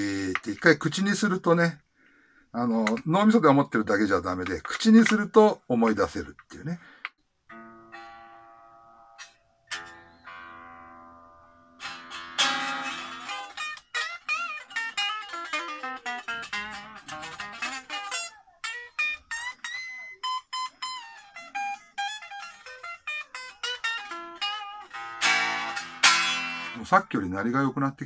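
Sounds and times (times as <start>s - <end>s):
electric guitar single-note licks: 7.5s - 27.1s.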